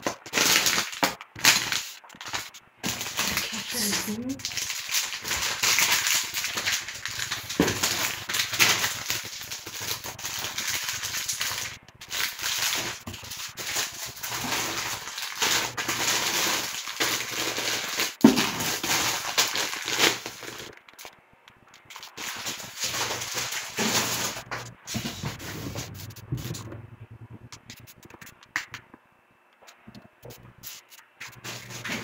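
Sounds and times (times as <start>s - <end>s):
dry beans rattling in bags: 0.0s - 21.1s, 21.7s - 26.2s
plastic packages crinkling: 0.0s - 26.6s, 29.7s - 32.0s.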